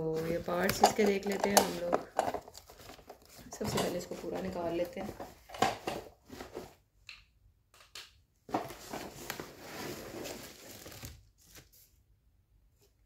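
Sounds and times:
packaging rustling: 0:00.0 - 0:06.7, 0:08.6 - 0:11.7.

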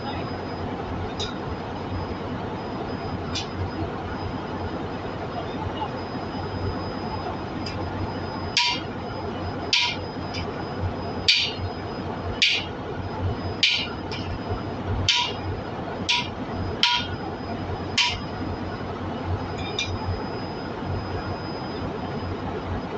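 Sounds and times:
hammer striking metal tool: 0:08.6 - 0:08.9, 0:09.8 - 0:10.0, 0:11.3 - 0:11.6, 0:12.4 - 0:12.7, 0:13.6 - 0:14.3, 0:15.1 - 0:15.4, 0:16.1 - 0:17.1, 0:18.0 - 0:18.2.

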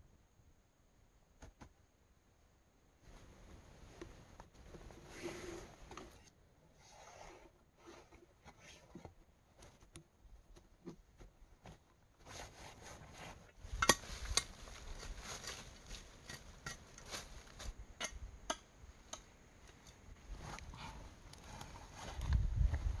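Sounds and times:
stones and soil scraping: 0:04.7 - 0:09.0, 0:11.6 - 0:18.2.

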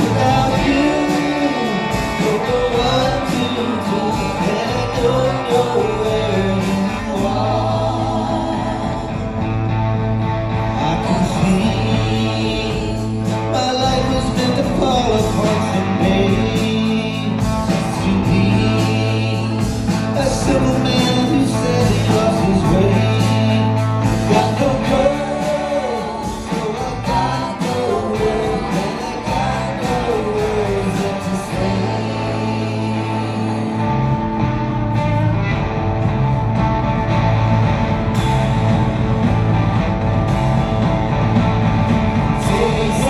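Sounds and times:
person singing: 0:00.0 - 0:09.6, 0:10.5 - 0:34.6, 0:42.2 - 0:43.0
live rock band playing: 0:00.0 - 0:43.0.

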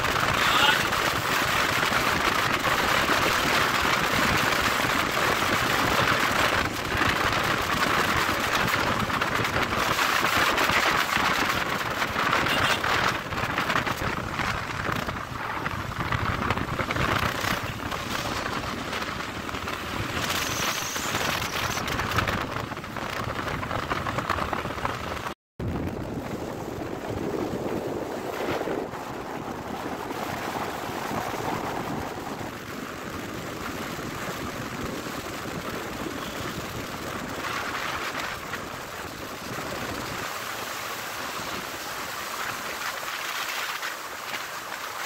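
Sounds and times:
wind and road noise: 0:00.0 - 0:45.0.

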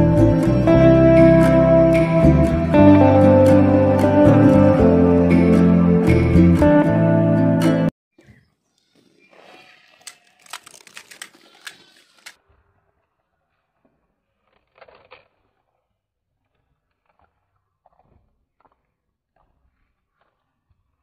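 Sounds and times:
crisp shells crunching: 0:10.1 - 0:12.3, 0:14.4 - 0:15.9.

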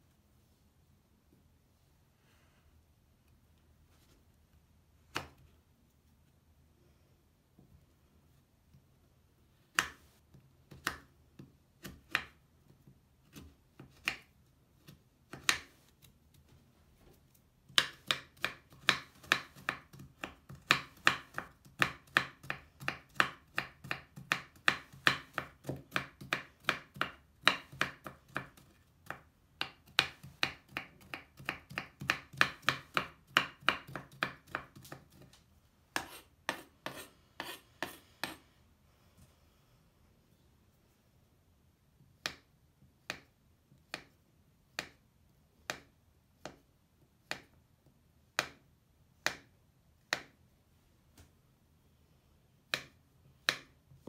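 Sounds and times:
knife chopping on wooden board: 0:17.7 - 0:35.3, 0:36.0 - 0:38.4.

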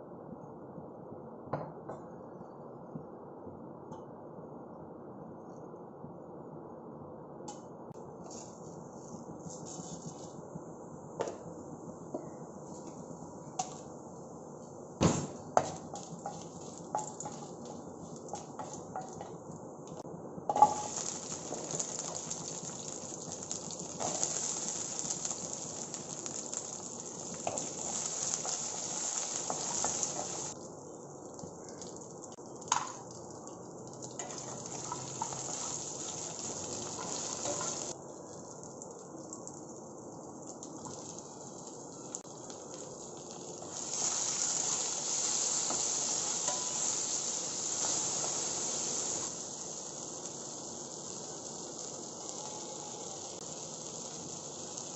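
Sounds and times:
spices and onions sizzling in oil: 0:12.2 - 0:54.9.

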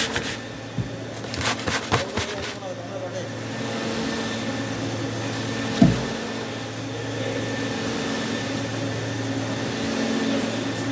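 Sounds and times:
sorting machine humming: 0:00.0 - 0:10.9.

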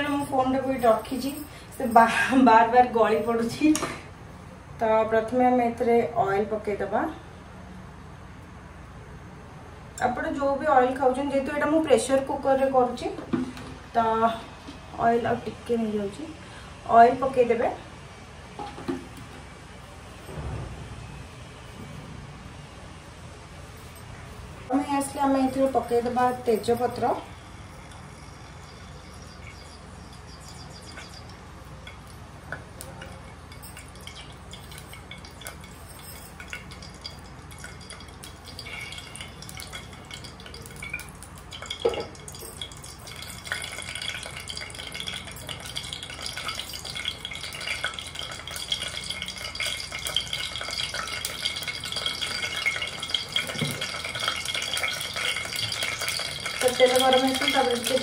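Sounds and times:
bay leaf sizzling in oil: 0:36.3 - 0:58.0.

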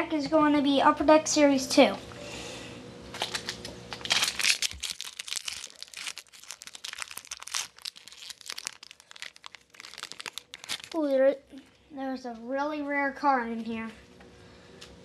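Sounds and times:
wrapper crinkling and tearing: 0:03.1 - 0:11.2.

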